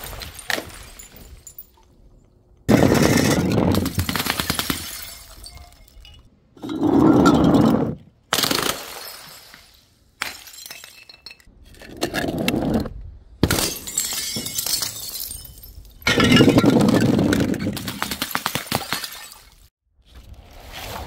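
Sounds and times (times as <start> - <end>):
glass bottles smashing: 2.7 - 8.0, 8.9 - 11.5, 13.4 - 17.8, 18.7 - 19.7.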